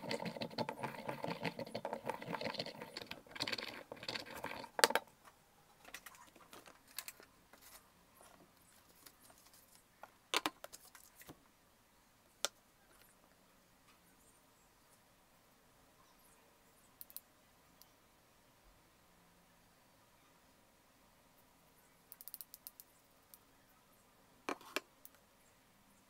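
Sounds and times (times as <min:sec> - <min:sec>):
pestle grinding in mortar: 0:00.0 - 0:05.0.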